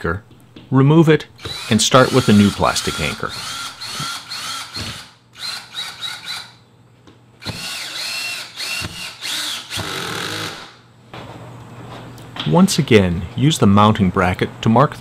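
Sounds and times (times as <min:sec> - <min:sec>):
cordless drill driving screw: 0:01.4 - 0:06.6, 0:07.4 - 0:10.7.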